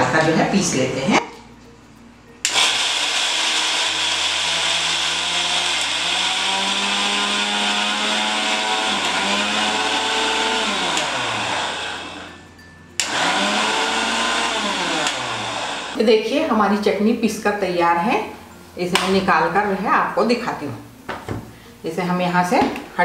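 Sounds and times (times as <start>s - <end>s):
mixer grinder motor running: 2.5s - 12.4s, 13.0s - 16.0s.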